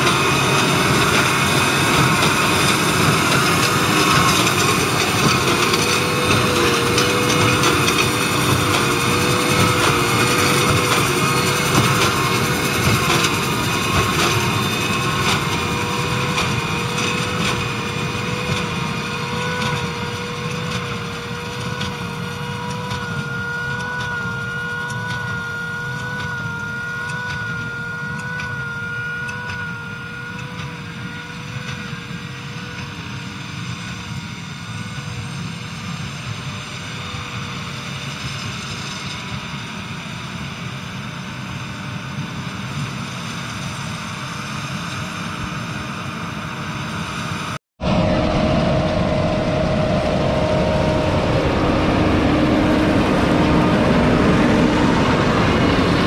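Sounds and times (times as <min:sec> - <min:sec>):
tractor diesel engine running: 0:00.0 - 0:32.2, 0:47.8 - 0:56.0
engine whine: 0:00.0 - 0:56.0.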